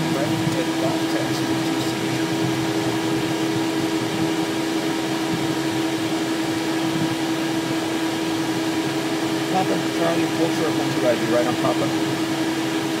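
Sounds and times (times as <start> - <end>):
jet engines idling in cockpit: 0.0 - 13.0.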